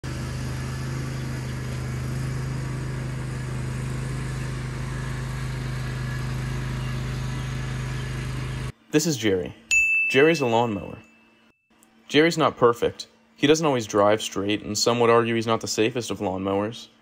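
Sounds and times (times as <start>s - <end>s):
lawn mower engine running: 0.0s - 8.7s.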